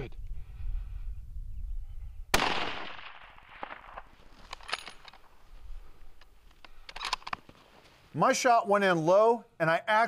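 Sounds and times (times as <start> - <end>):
rifle shot echoing: 2.3 - 4.2.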